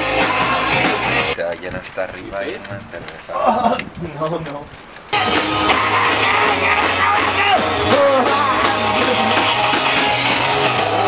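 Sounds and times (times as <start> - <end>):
rock music with singing: 0.0 - 1.4, 5.2 - 11.0.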